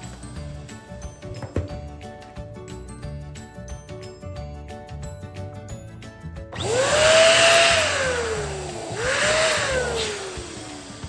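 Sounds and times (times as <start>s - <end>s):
electric balloon pump running: 6.6s - 11.0s.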